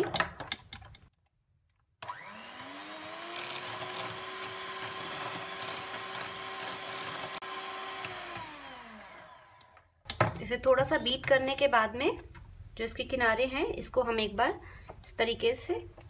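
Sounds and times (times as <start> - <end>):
electric hand mixer whining: 2.0 - 10.0.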